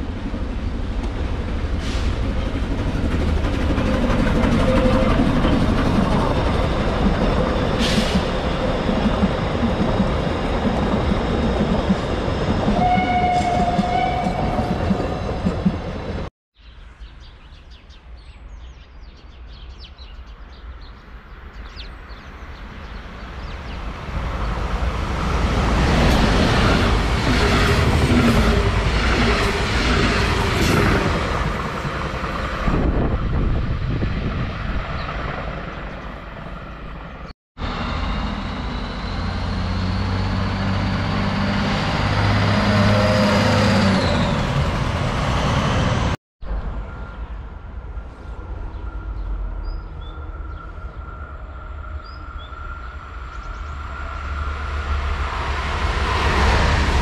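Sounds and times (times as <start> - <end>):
passenger train passing: 0.0 - 16.3, 20.3 - 57.0
railcar humming: 0.0 - 16.3, 18.4 - 57.0
train rumble and wheel clatter: 0.0 - 16.3, 20.3 - 57.0
high wheel squeal: 37.6 - 41.4.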